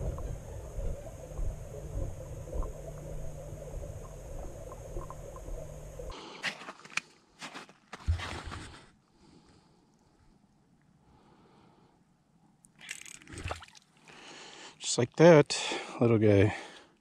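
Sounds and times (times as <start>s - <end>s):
faint ticks: 0.0s - 6.1s
muffled underwater rumble and hiss: 0.0s - 6.1s
fishing reel clicks and rustles: 12.7s - 13.5s.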